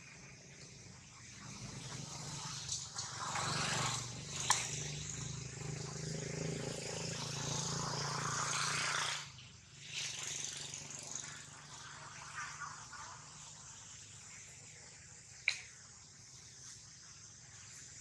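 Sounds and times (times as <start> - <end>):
vehicle engine running: 1.0 - 9.3
sharp click: 15.4 - 15.8.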